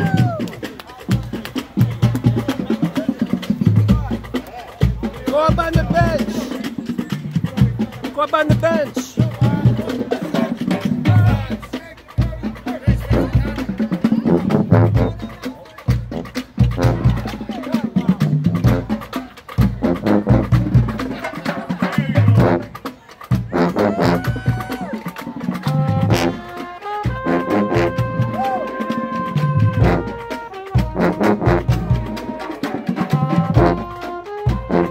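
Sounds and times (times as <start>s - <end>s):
brass horns playing: 9.1s - 15.5s, 16.1s - 34.9s.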